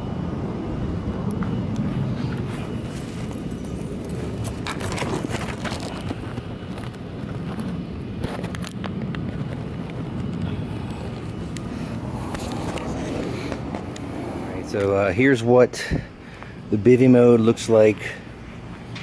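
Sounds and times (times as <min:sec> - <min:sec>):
steady low rumble: 0:00.0 - 0:19.0
hammock fabric rustling: 0:02.4 - 0:08.4.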